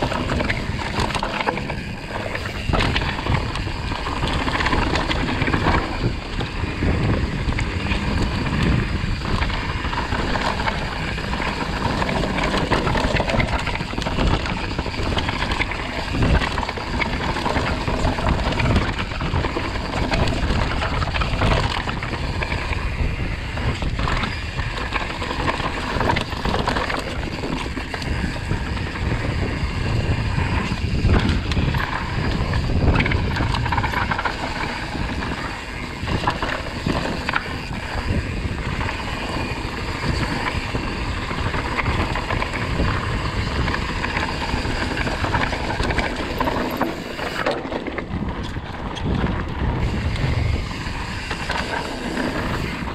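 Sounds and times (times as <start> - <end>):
heavy low rumble: 0.0 - 19.4
wind noise on microphone: 0.0 - 52.9.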